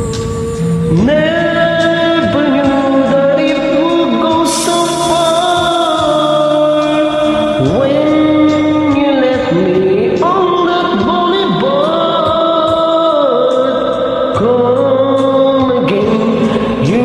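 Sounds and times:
instrumental karaoke backing track: 0.0 - 17.0.

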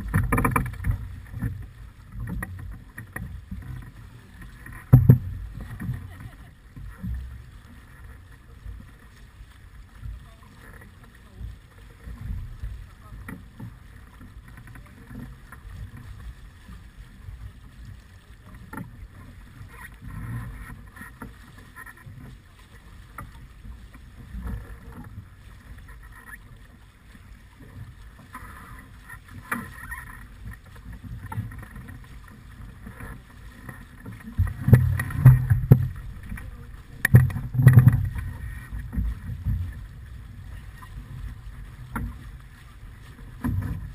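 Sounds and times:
water rushing along hull: 0.0 - 43.9
wind buffeting microphone: 33.9 - 43.9.

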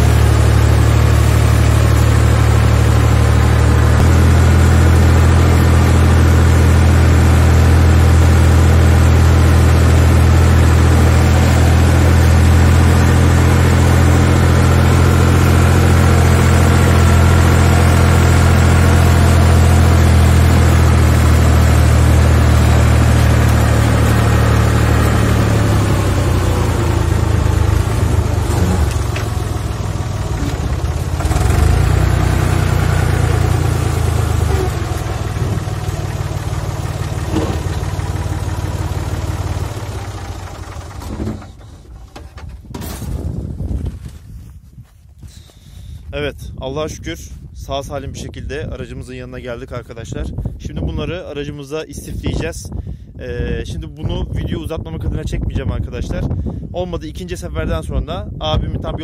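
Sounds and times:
tractor engine droning: 0.0 - 44.1.

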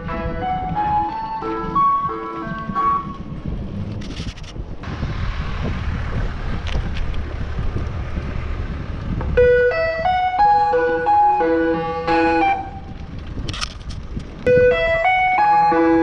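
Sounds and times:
ice cream van chimes: 0.0 - 3.3, 9.4 - 12.7, 14.5 - 16.0
wind buffeting microphone: 0.0 - 16.0.

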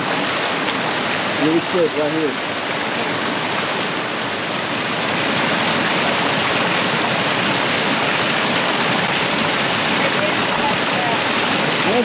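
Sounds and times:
rushing running water: 0.0 - 12.0.

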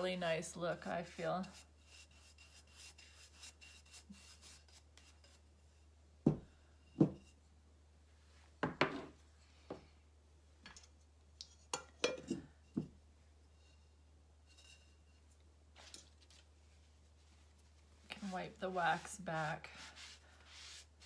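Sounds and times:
wax brushing on a pot: 0.0 - 5.8, 15.8 - 21.0.

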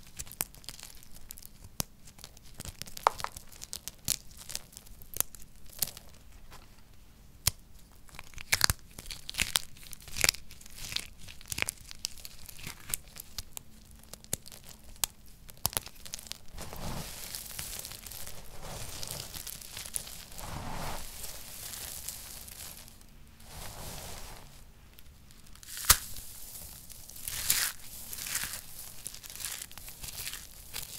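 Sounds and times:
dry soap crumbling cracks: 0.0 - 6.2, 7.4 - 16.6, 17.2 - 20.4, 24.9 - 30.9
hands raking crushed soap: 15.6 - 30.9.

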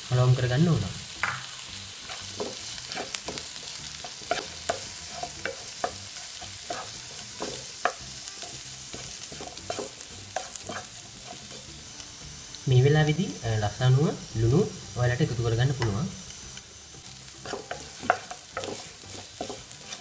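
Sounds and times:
oil sizzling faintly: 0.0 - 20.0
spatula scraping frying pan: 2.0 - 12.1, 15.6 - 20.0.

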